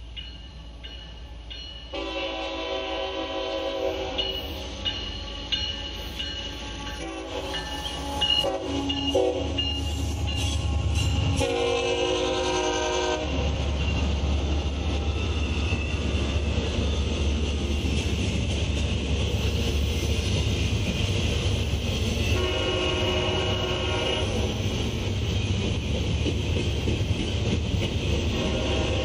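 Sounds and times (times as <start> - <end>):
freight train rumbling past: 0.0 - 29.0
train horn: 1.9 - 4.6, 6.5 - 13.5, 22.3 - 24.6, 28.3 - 29.0.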